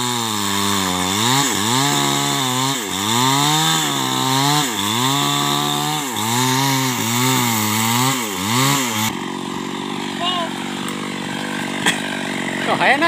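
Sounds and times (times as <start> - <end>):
chainsaw cutting wood: 0.0 - 13.0.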